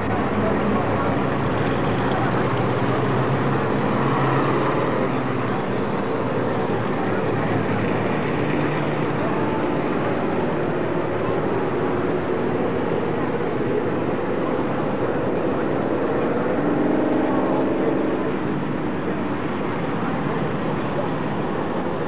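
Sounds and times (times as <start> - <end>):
stock car engines passing: 0.0 - 22.0.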